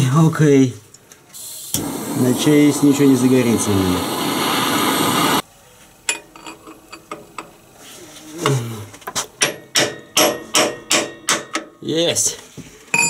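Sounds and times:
loud blowing noise from heating tool: 1.4 - 5.4.

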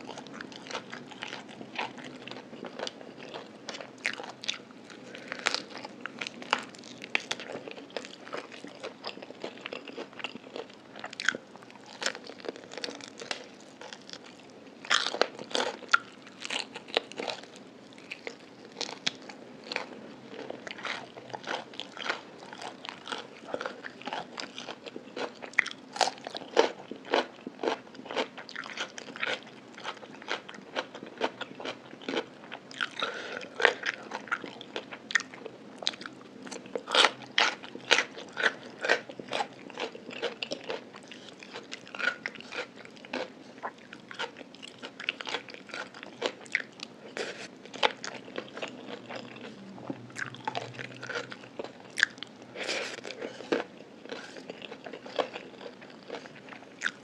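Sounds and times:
person chewing crunchy food: 0.0 - 57.0.

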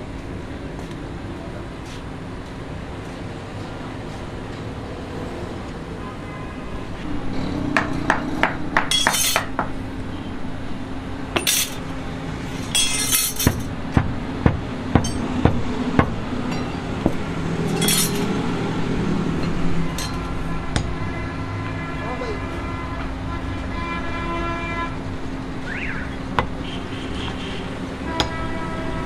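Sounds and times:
hand rammer knocking: 13.4 - 17.2.

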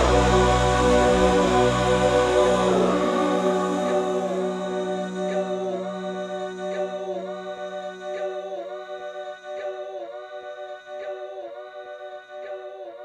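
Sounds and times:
low held note: 0.0 - 8.3
choir-like vocal chords: 0.0 - 13.0.

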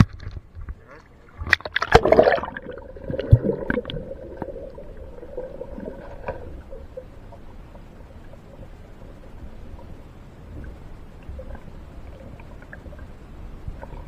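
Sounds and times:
water sloshing and splashing: 0.0 - 9.5
faint steady hum: 0.0 - 14.0.

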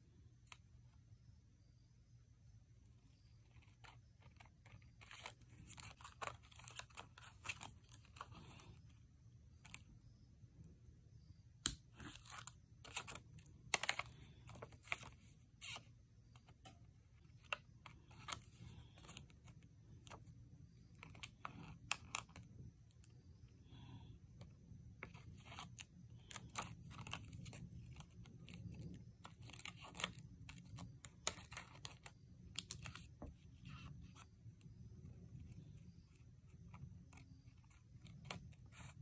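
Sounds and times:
sticker pieces rustling: 3.4 - 10.0, 11.6 - 23.1, 24.4 - 34.2.

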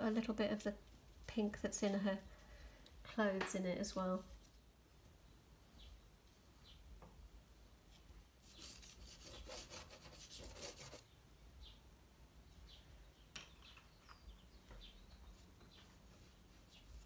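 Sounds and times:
pastel scratching on paper: 8.4 - 11.0.

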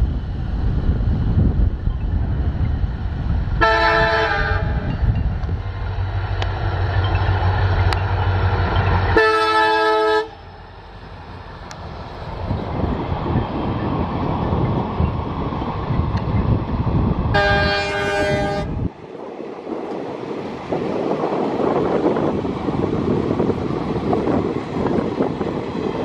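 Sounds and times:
diesel locomotive engine drone: 0.0 - 26.0
train rumbling on rails: 0.0 - 26.0
multi-tone train horn: 3.6 - 5.0, 9.1 - 10.5, 17.3 - 18.9.

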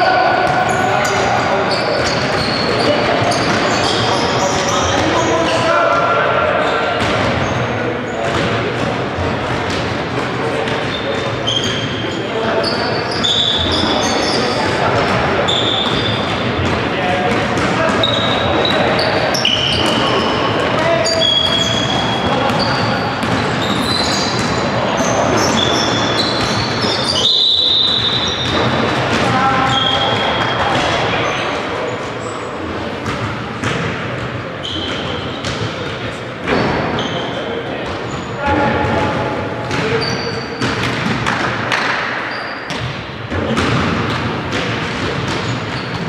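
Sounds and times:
sports hall din: 0.0 - 46.0
shoes squeaking: 0.5 - 5.7, 10.8 - 14.8, 15.4 - 16.4, 17.6 - 33.2, 34.6 - 35.6, 39.7 - 40.7, 45.3 - 46.0
basketball bouncing on court: 7.0 - 7.6, 8.2 - 10.1, 13.2 - 31.1, 32.9 - 37.2, 37.8 - 46.0.

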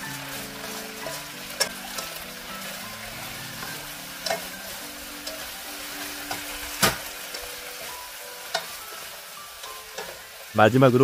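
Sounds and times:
sauce sizzling in a wok: 0.0 - 11.0
utensils knocking against wok: 0.6 - 2.3, 3.2 - 7.5, 8.5 - 10.3.

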